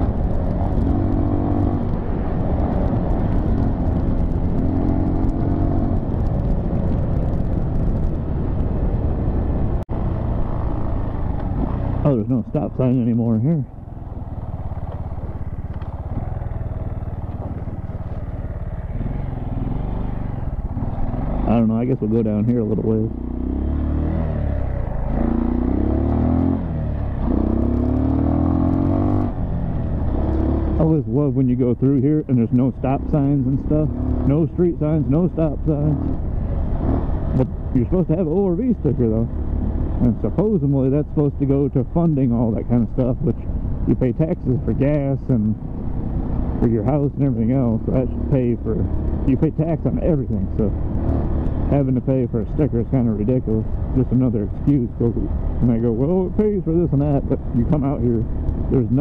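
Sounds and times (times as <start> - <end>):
dirt bike engine running: 0.0 - 59.0
dirt bike engine revving: 23.1 - 31.0.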